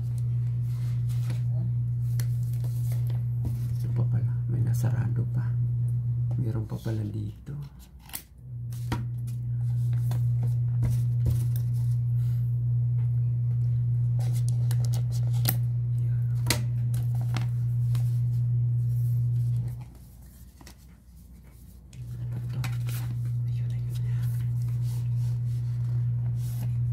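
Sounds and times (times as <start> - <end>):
steady low hum: 0.0 - 26.9
packaging crinkling and tearing: 14.2 - 15.6.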